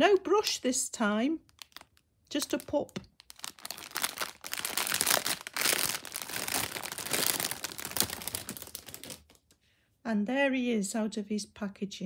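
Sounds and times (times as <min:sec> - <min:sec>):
plastic bag crinkling: 0:01.4 - 0:09.5.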